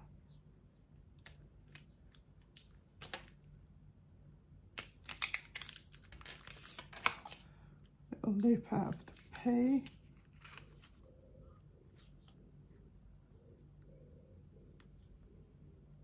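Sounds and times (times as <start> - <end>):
vinyl sheet crinkling and clicking: 4.8 - 7.4, 8.8 - 11.0.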